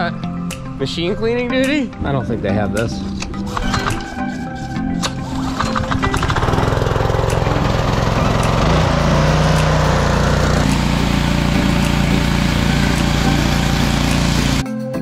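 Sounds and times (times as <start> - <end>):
small engine running: 5.4 - 14.6
water spray hissing: 7.1 - 14.6.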